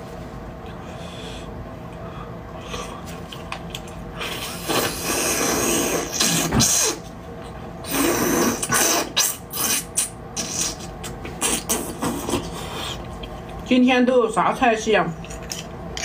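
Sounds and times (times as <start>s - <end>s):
loud sucking slurps: 4.2s - 7.0s, 7.8s - 12.6s.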